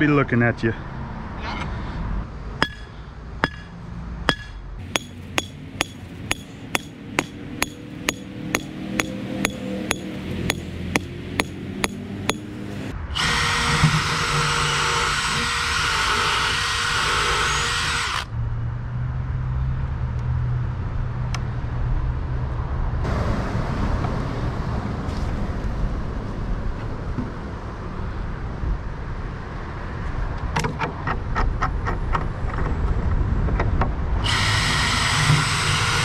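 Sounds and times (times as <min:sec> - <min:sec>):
hammer striking metal stake: 0:02.6 - 0:12.9
loud steady whirring: 0:04.3 - 0:18.3, 0:34.2 - 0:36.0.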